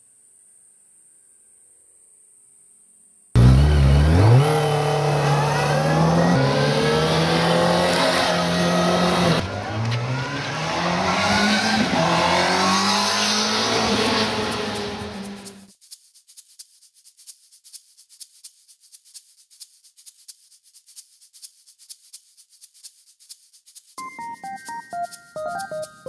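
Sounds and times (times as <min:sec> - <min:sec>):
motorcycle engine accelerating: 0:03.4 - 0:15.7.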